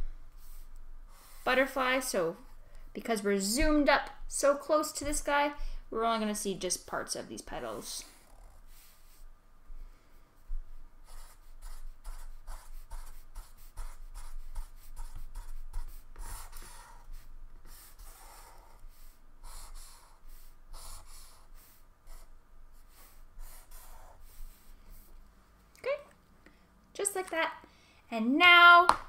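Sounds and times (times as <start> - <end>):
marker scratching on paper: 0.4 - 2.2, 11.0 - 25.1.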